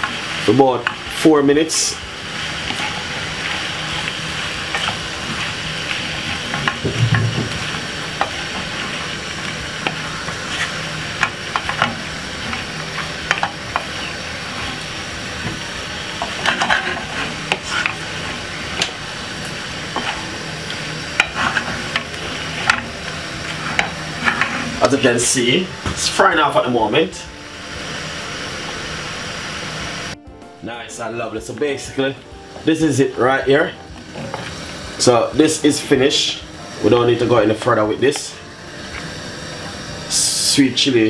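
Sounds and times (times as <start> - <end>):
wooden spoon scraping a pan: 0.0 - 26.2
spinach sizzling in a frying pan: 0.0 - 41.0.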